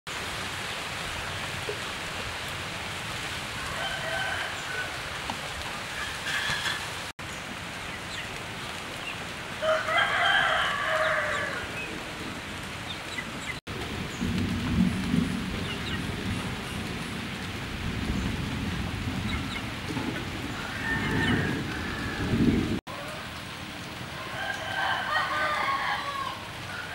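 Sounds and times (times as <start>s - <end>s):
rooster crowing: 3.6s - 5.0s, 9.6s - 11.8s, 20.5s - 23.1s, 24.2s - 26.9s.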